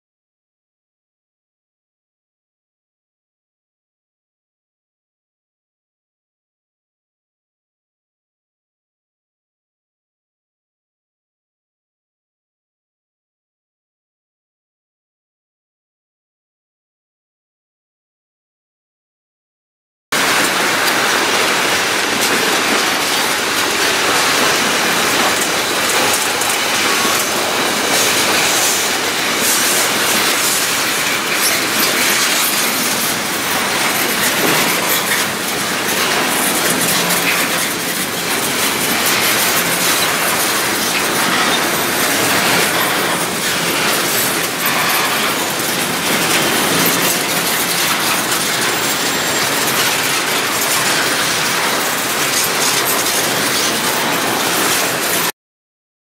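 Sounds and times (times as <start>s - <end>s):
freight train rolling past: 20.2s - 35.1s
train wheel clicks: 20.4s - 55.2s.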